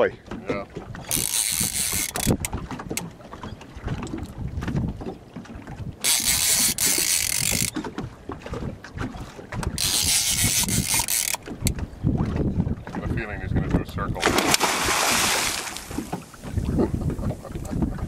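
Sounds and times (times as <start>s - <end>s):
wind and water rumble: 0.0s - 18.0s
fishing reel whirring: 1.1s - 2.4s, 6.0s - 7.7s, 9.8s - 11.4s.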